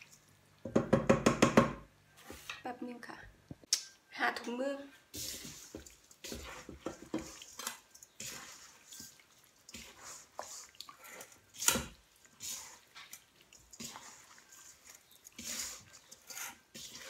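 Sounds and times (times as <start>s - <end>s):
wet rustling and squelching: 5.0s - 17.0s
fish scraping metal bowl: 5.1s - 17.0s.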